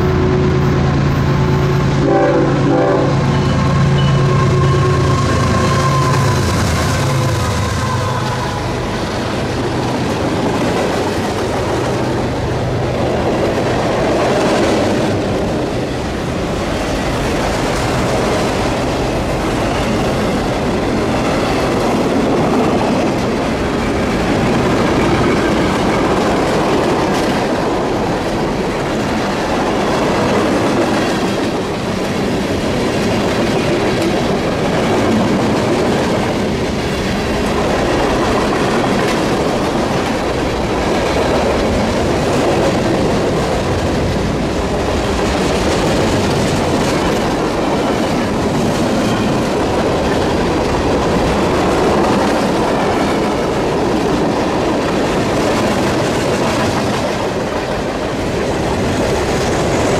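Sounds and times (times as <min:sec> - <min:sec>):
freight train wheels rumbling on rails: 0:00.0 - 0:59.9.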